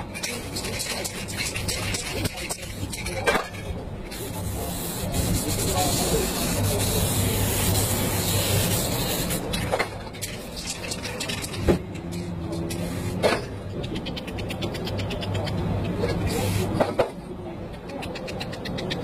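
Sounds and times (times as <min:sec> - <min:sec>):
spray paint can hissing: 0:00.3 - 0:03.2, 0:04.1 - 0:13.2, 0:16.3 - 0:16.8.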